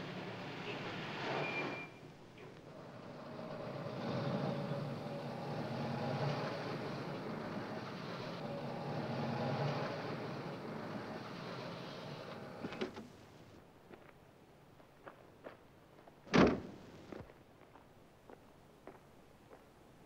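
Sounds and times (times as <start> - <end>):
vehicles driving past: 0.0 - 13.6.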